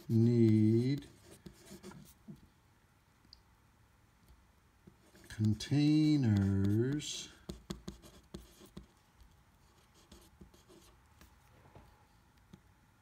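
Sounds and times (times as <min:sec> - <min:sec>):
pen scratching on paper: 0:00.0 - 0:02.2, 0:05.0 - 0:08.9, 0:09.7 - 0:10.9.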